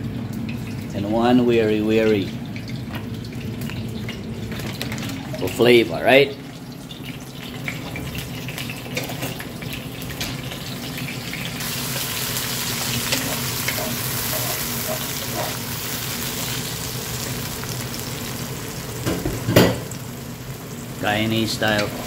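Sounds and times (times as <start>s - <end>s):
vegetables sizzling in oil: 2.1s - 22.0s
spatula scraping wok: 11.8s - 15.7s, 21.7s - 22.0s.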